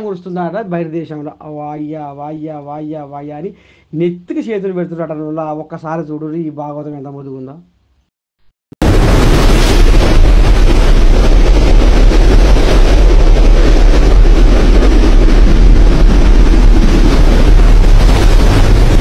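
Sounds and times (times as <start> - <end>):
wind buffeting microphone: 8.8 - 19.0.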